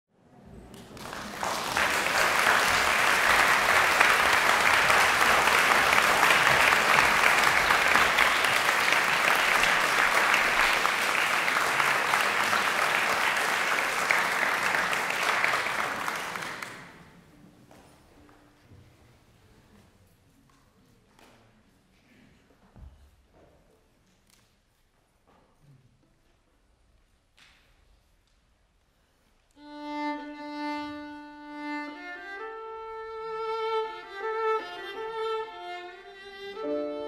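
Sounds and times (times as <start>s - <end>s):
audience applauding: 0.6s - 17.2s.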